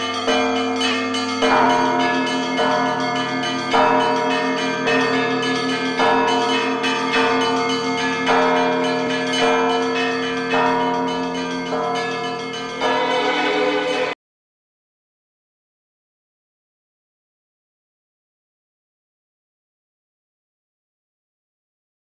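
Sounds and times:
church bells ringing: 0.0 - 14.2
heavy bell strike: 0.0 - 14.2.

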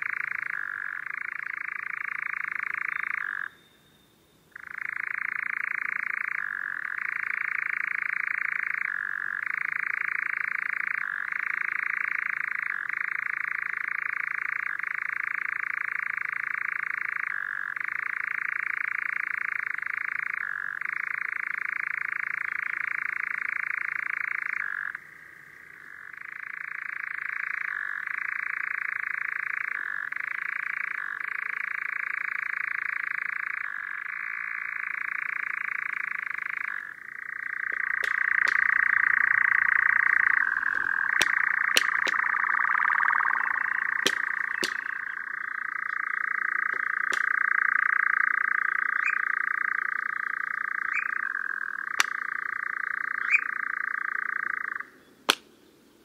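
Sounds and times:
nightjar churring trill: 25.9 - 55.4
sharp clicks: 37.7 - 38.7, 40.6 - 42.4, 44.0 - 45.2, 46.6 - 47.3, 52.0 - 52.2.

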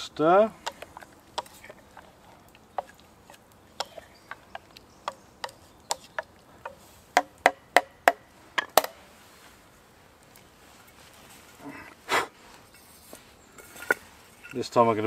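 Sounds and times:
spoon stirring in metal pot: 0.6 - 6.8.

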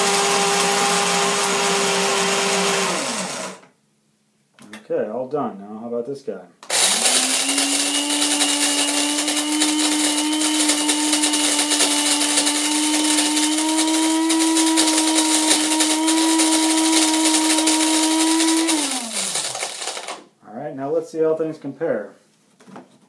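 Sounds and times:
coffee grinder running: 0.0 - 3.6, 6.6 - 20.2
motor winding down: 0.0 - 3.6, 6.6 - 20.2.

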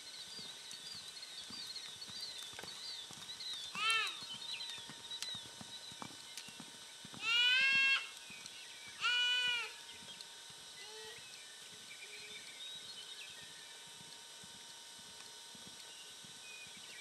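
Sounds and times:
goat bleating: 7.2 - 8.1, 9.0 - 9.7.

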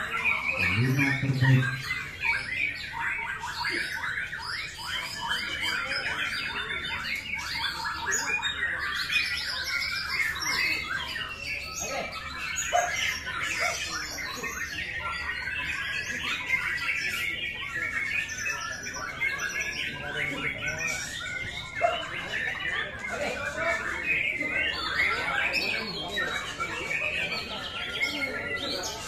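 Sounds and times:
bird singing chirps and whistles: 0.0 - 23.0.

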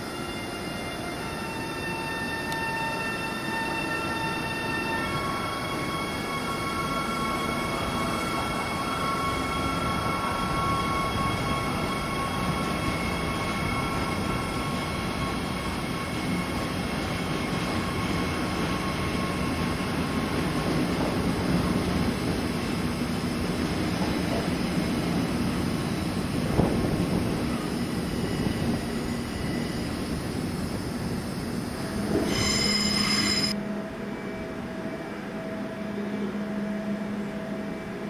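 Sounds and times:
train rolling past: 0.0 - 38.0
wind buffeting microphone: 23.5 - 32.2.

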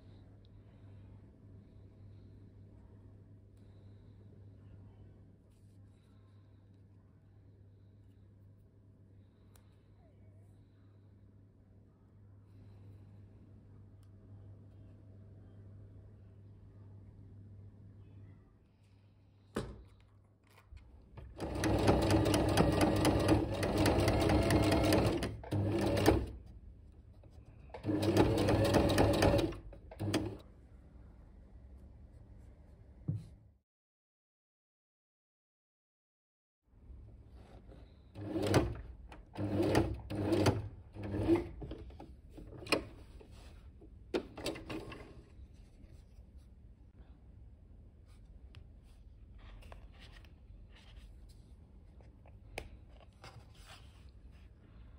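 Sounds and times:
sewing machine stitching: 21.2 - 26.4, 27.7 - 30.4, 38.2 - 43.0, 44.2 - 45.3.

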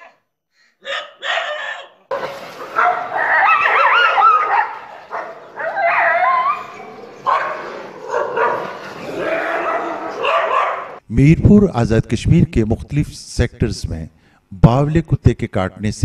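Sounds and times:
dogs barking and yelping: 0.8 - 11.0
dog high wavering cries: 2.8 - 7.0.

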